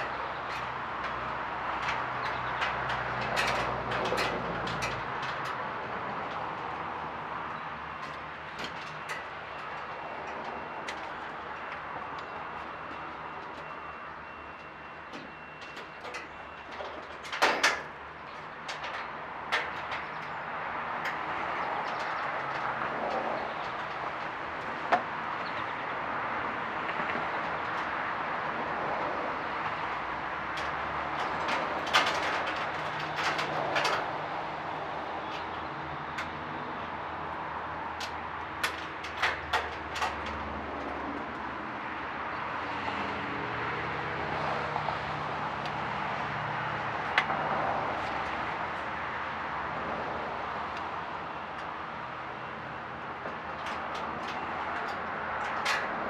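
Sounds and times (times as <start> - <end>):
knocks and clanks: 0.0 - 25.8, 30.4 - 36.5, 37.9 - 42.1, 53.2 - 56.0.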